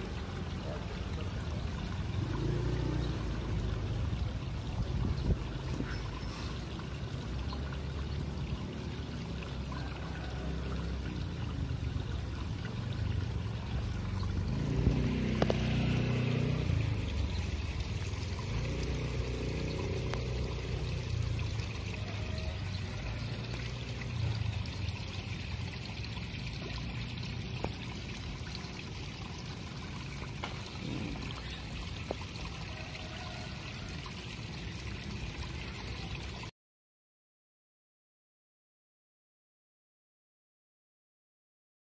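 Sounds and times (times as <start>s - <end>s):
shallow water trickling: 0.0s - 36.5s.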